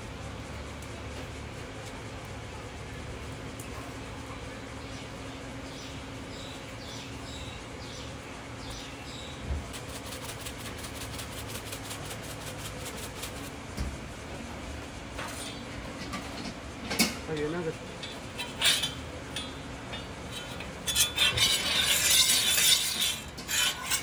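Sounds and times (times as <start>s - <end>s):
cooking equipment humming: 0.0s - 24.0s
shaker ticking: 9.7s - 14.2s
squeaky squirts: 18.4s - 19.0s, 20.3s - 24.0s.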